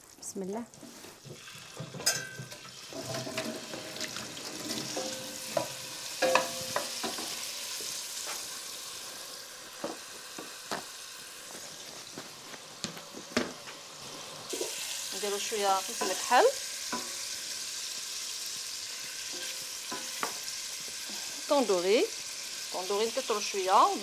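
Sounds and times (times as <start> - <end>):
beef sizzling in a pot: 0.0 - 24.0
wooden spoon scraping a pot: 14.0 - 17.0.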